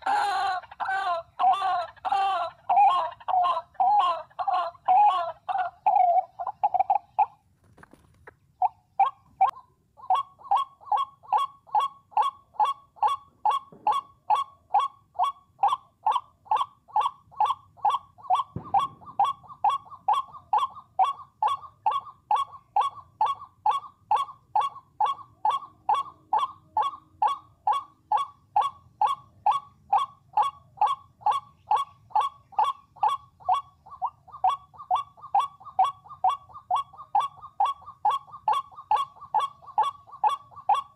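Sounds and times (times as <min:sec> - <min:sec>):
waterhen calling: 0:00.0 - 0:07.4, 0:08.2 - 0:40.9.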